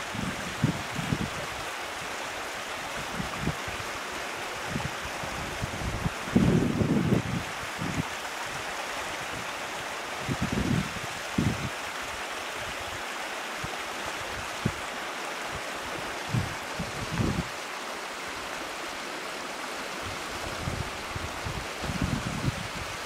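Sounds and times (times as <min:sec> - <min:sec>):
stream rushing over rocks: 0:00.0 - 0:23.0
wind buffeting microphone: 0:04.6 - 0:08.1, 0:10.2 - 0:11.7, 0:15.9 - 0:17.5, 0:20.0 - 0:23.0.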